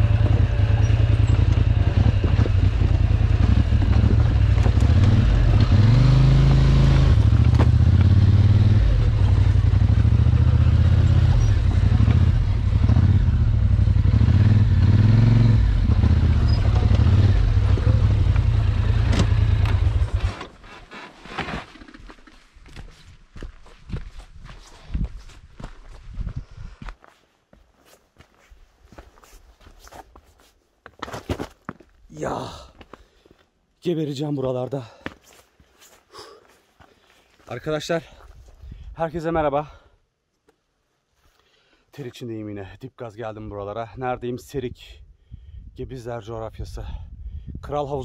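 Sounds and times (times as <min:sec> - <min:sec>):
atv engine revving: 0:00.0 - 0:20.5.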